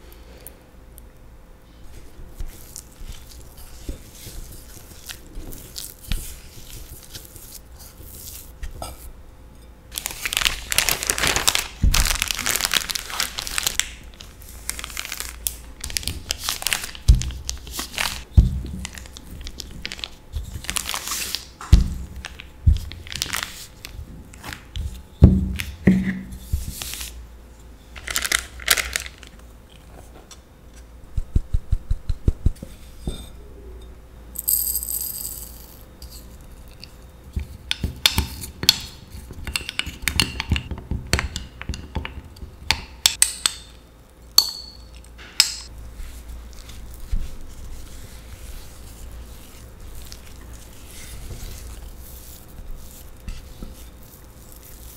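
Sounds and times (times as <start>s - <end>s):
plastic bag crinkling: 9.9s - 24.0s, 28.0s - 29.4s.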